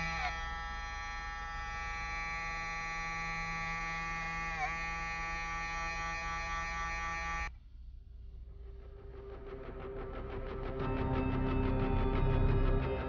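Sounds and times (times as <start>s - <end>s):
electric motor buzzing: 0.0s - 7.5s.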